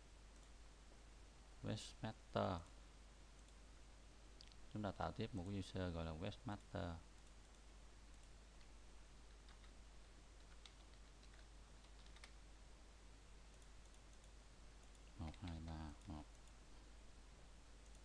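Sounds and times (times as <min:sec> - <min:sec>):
steady low hum and hiss: 0:00.0 - 0:18.0
faint keyboard keystrokes: 0:10.4 - 0:12.4.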